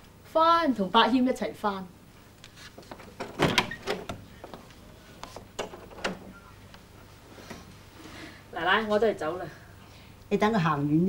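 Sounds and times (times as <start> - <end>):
door opening and closing: 2.8 - 6.4
door knocks and clicks: 3.0 - 4.6, 5.5 - 6.3.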